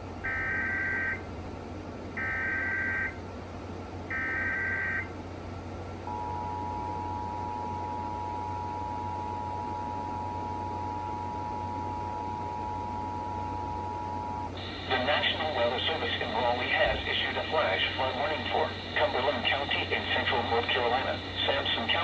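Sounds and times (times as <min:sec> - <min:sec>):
two-tone attention signal: 0:04.1 - 0:05.1, 0:06.1 - 0:14.5.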